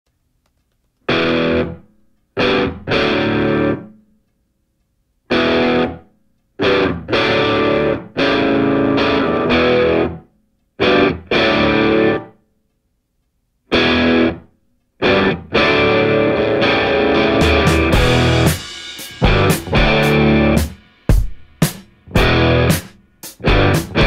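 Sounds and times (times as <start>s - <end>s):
distorted electric guitar chords: 1.1s - 4.0s, 5.3s - 6.0s, 6.6s - 12.4s, 13.7s - 24.0s.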